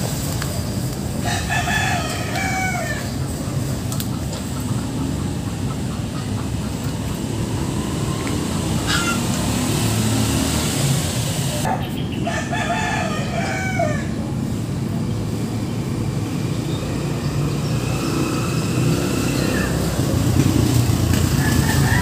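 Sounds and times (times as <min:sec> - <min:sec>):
rooster crowing: 0:01.2 - 0:03.2, 0:08.8 - 0:09.4, 0:12.2 - 0:14.2, 0:21.3 - 0:22.0.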